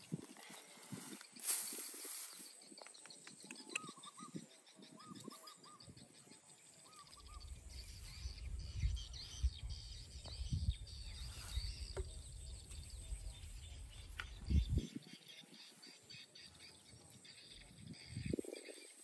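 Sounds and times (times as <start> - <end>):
birds chirping and calling: 0.0 - 19.0
low rumble on microphone: 7.3 - 15.1.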